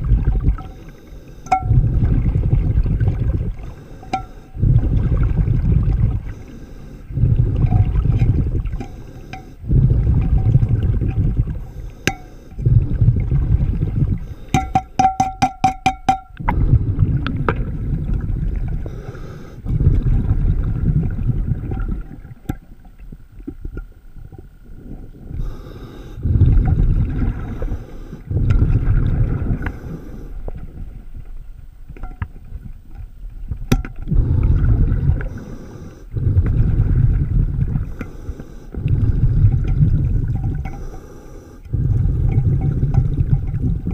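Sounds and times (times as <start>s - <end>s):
exhaled bubbles underwater: 0.0s - 43.9s
regulator inhalations: 0.6s - 1.8s, 3.6s - 5.0s, 6.2s - 10.3s, 11.4s - 12.9s, 14.1s - 15.0s, 18.8s - 20.0s, 25.3s - 26.7s, 27.3s - 28.5s, 29.6s - 30.6s, 34.1s - 36.6s, 37.7s - 39.8s, 40.6s - 43.0s.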